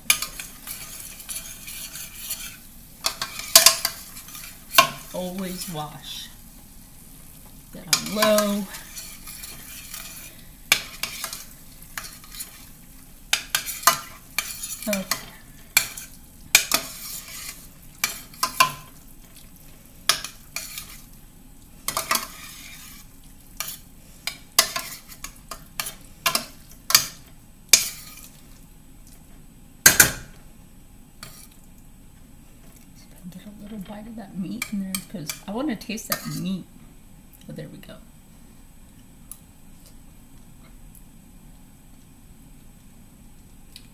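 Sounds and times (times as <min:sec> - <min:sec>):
utensil scraping pan: 0:00.0 - 0:06.2, 0:07.8 - 0:12.7, 0:13.3 - 0:18.9, 0:20.1 - 0:21.1, 0:21.9 - 0:28.4
faint sizzle: 0:00.0 - 0:43.9.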